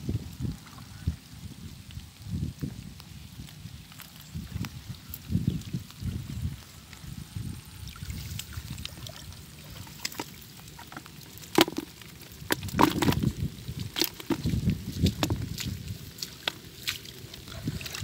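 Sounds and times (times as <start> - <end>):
water dripping into bucket: 1.9 - 18.0
fish thrashing in bucket: 7.8 - 18.0
trap knocking against bucket: 11.6 - 11.9.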